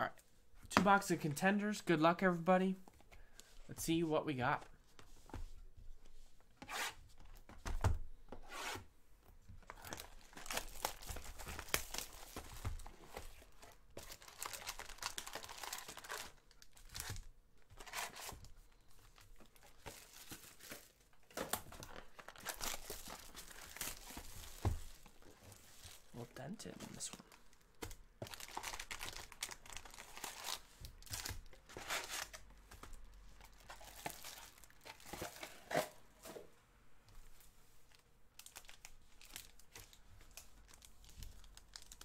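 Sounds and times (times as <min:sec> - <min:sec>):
wrapper and cardboard tearing: 0:28.3 - 0:32.4.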